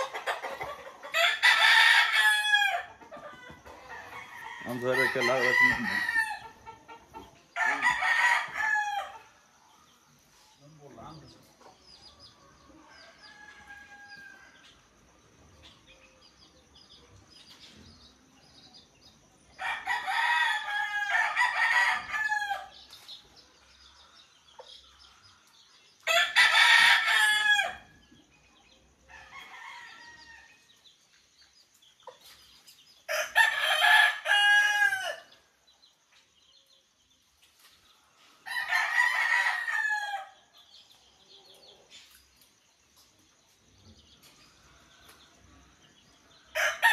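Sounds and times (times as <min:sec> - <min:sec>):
rooster crowing: 0:01.1 - 0:02.9, 0:03.9 - 0:06.6, 0:07.6 - 0:09.3, 0:12.9 - 0:14.6, 0:19.6 - 0:22.7, 0:26.1 - 0:27.9, 0:33.1 - 0:35.3, 0:38.4 - 0:40.4, 0:46.5 - 0:46.9.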